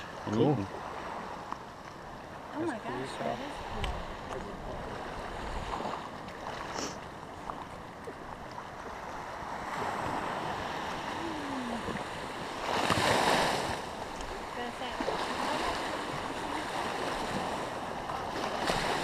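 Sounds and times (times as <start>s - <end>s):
sea waves washing in: 0.0s - 19.0s.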